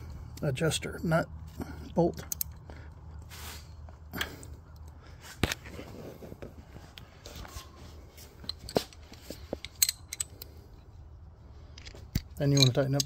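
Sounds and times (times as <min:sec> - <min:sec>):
ratchet wrench clicking on metal: 0:09.6 - 0:10.6.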